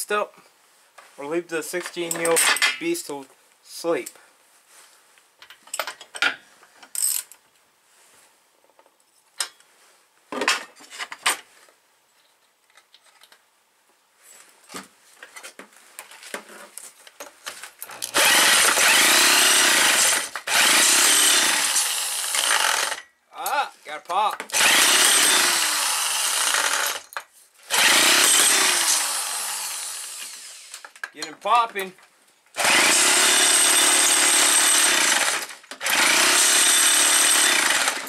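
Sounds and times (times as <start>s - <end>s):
tools clicking and clattering: 1.7s - 2.8s
electric drill spinning an engine: 18.0s - 23.0s, 24.5s - 27.1s, 27.7s - 30.9s, 32.6s - 38.0s.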